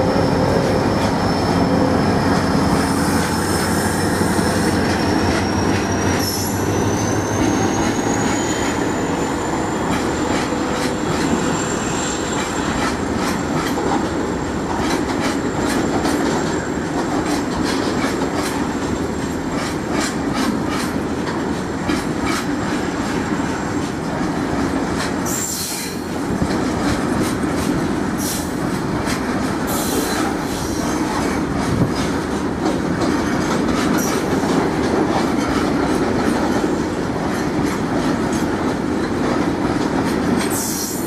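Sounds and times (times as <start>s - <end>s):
train wheels clacking over rail joints: 0.3s - 41.0s.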